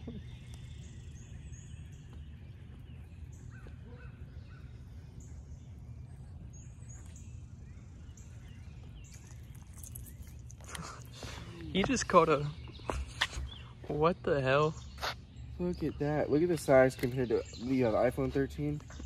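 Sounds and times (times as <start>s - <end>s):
faint bird calls: 0.0s - 14.0s.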